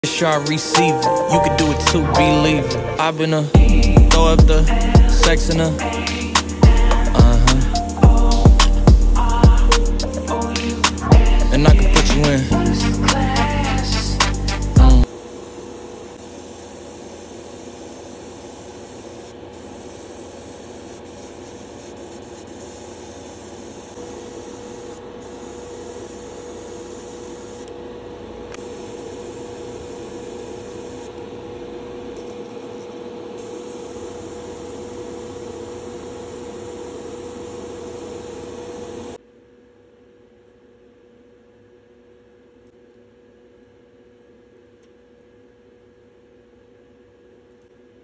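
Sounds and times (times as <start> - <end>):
airbrush spraying hiss: 3.6 - 14.8
low hum: 3.6 - 15.1.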